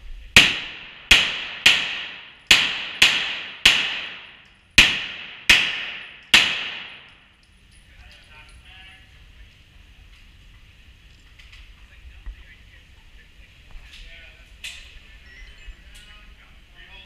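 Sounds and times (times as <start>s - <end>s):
pistol shots echoing indoors: 0.4s - 7.2s.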